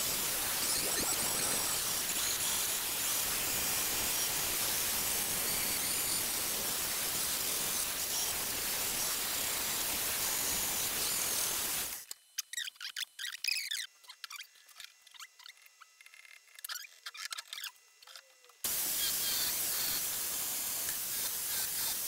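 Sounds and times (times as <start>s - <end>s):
angle grinder grinding steel: 0.0s - 12.0s, 20.7s - 22.0s.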